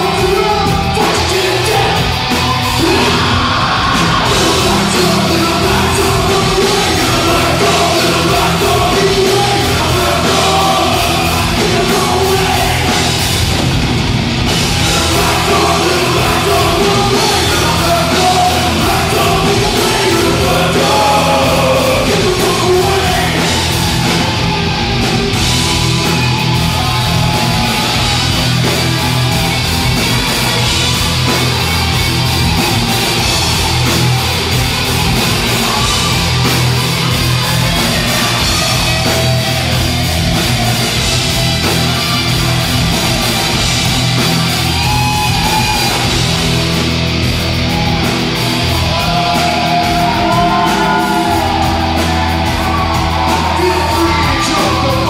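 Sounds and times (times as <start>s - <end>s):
person singing: 0.0s - 13.2s, 14.7s - 24.2s, 48.9s - 55.0s
bass guitar: 0.0s - 55.0s
drums: 0.0s - 55.0s
electric guitars: 0.0s - 55.0s.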